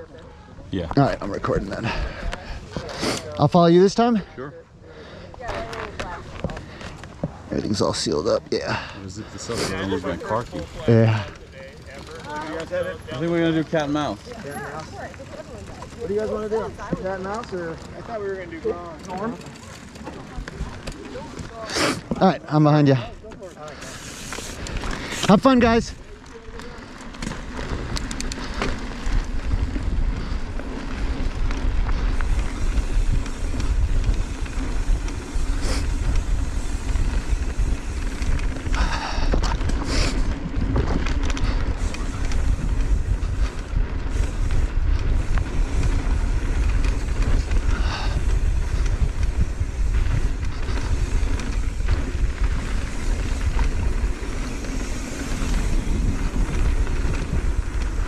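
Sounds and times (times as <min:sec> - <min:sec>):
bike tyre and drivetrain rattle: 0:00.0 - 0:58.0
wind rumbling on microphone: 0:26.9 - 0:58.0.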